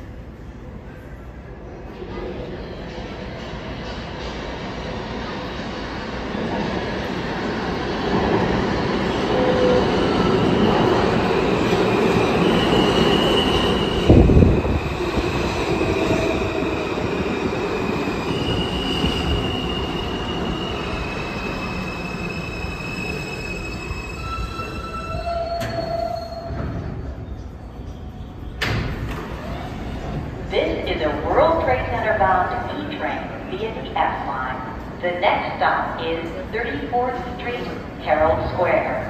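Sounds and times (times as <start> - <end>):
subway train rumbling: 0.0 - 39.0
train wheels squealing: 12.3 - 14.2, 17.8 - 28.6.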